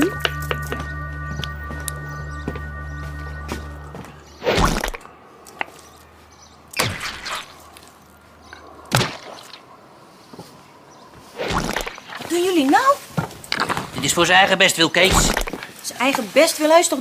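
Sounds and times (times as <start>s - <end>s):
wet squelching thuds: 4.4s - 5.1s, 6.7s - 7.9s, 8.9s - 9.6s, 11.4s - 12.3s, 15.0s - 15.7s.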